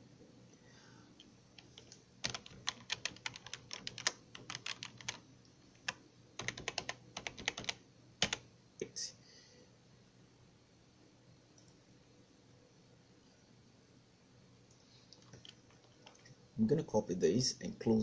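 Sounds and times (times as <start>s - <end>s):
typing on computer keyboard: 1.6s - 5.2s, 5.8s - 8.4s.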